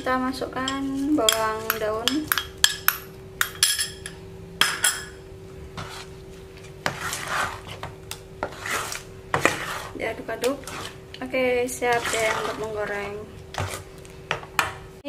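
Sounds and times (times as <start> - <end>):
metal spoon clinking on bowl: 0.6 - 5.2
spoon stirring thick batter: 5.7 - 14.9.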